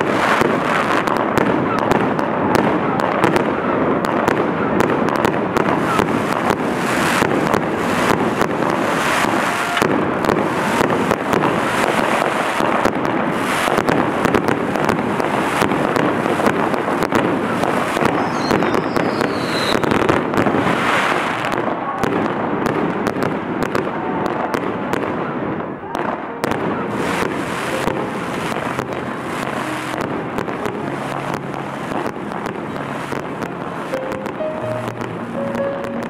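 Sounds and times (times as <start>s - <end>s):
steady rushing noise: 0.0s - 21.6s, 26.6s - 36.0s
fireworks crackling and popping: 0.0s - 36.0s.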